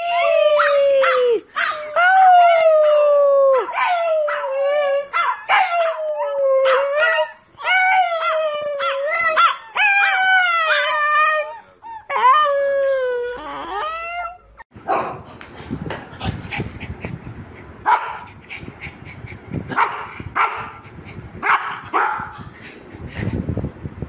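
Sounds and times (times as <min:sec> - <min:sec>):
dog yelping: 0:05.1 - 0:11.1.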